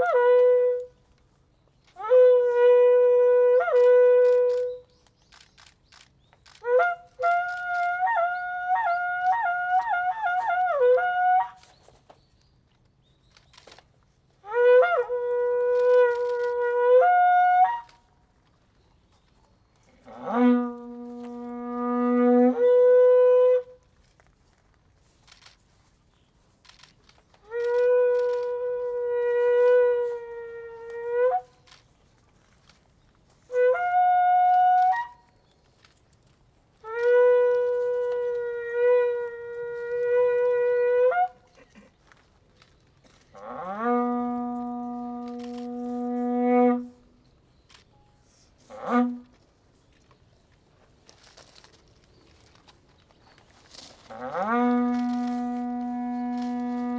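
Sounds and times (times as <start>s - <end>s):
wind instrument long held notes: 0.0s - 5.4s, 6.4s - 11.8s, 14.4s - 18.2s, 19.8s - 24.6s, 26.6s - 36.0s, 36.7s - 50.0s, 53.4s - 56.9s.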